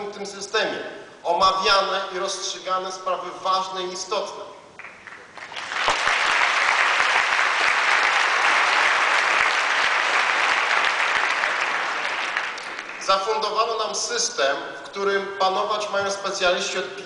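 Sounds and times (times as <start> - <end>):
audience applauding: 4.8 - 13.2.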